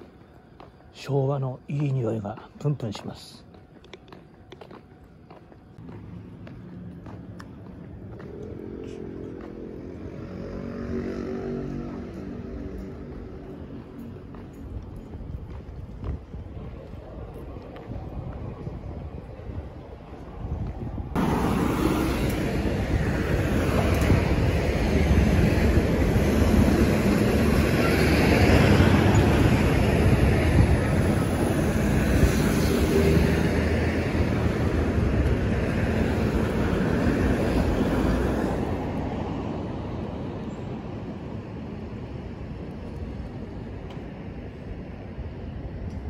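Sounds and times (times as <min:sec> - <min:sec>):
passing vehicle rumbling: 0:05.8 - 0:14.5, 0:21.0 - 0:40.2.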